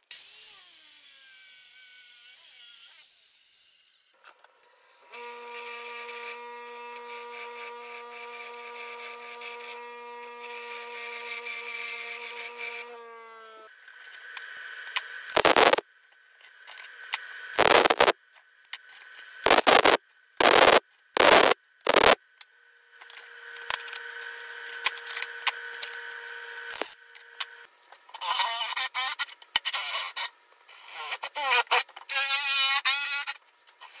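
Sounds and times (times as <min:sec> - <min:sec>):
bench grinder humming: 0:15.3 - 0:15.8, 0:17.6 - 0:18.1, 0:19.5 - 0:22.2.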